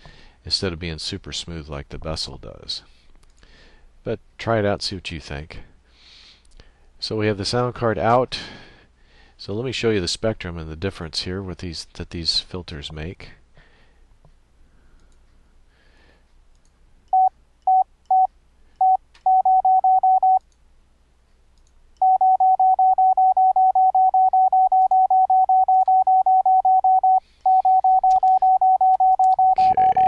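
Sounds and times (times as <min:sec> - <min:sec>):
morse code beeps: 0:17.2 - 0:20.4, 0:22.0 - 0:30.0.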